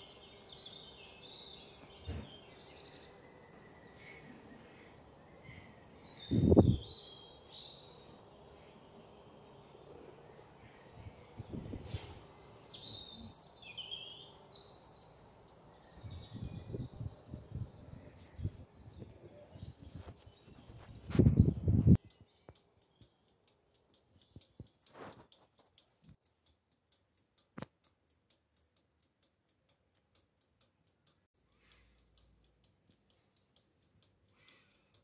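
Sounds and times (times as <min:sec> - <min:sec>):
birds chirping: 0:00.0 - 0:26.1.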